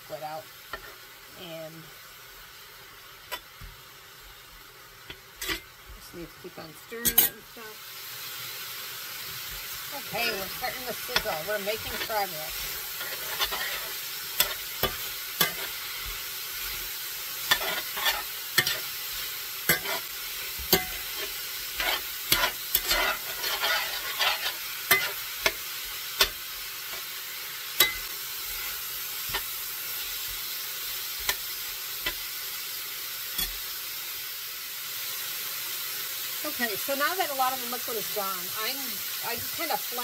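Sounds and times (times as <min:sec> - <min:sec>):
meat sizzling in a frying pan: 0:00.0 - 0:40.0
spoon clacking and scraping pan: 0:03.3 - 0:03.7, 0:05.1 - 0:05.8, 0:07.0 - 0:07.4, 0:09.6 - 0:32.3, 0:33.3 - 0:33.7.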